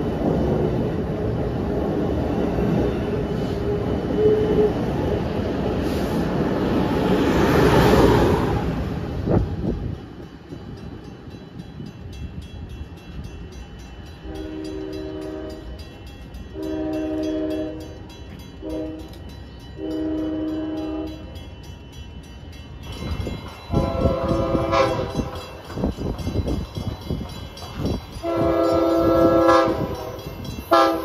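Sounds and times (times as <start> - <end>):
low train rumble: 0.0 - 31.0
train air horn blasts: 14.2 - 15.8, 16.5 - 18.0, 18.6 - 19.2, 19.8 - 21.3, 23.7 - 25.4, 28.2 - 30.1, 30.7 - 31.0
higher pitched horn: 16.6 - 18.0, 18.6 - 19.2, 23.7 - 25.4, 28.2 - 30.1, 30.7 - 31.0.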